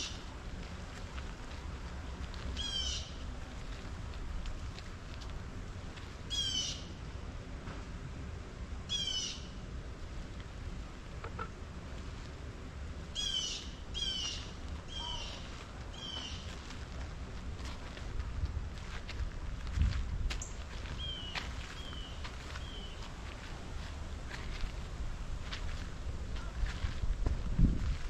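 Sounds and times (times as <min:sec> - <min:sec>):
low outdoor rumble: 0:00.0 - 0:28.0.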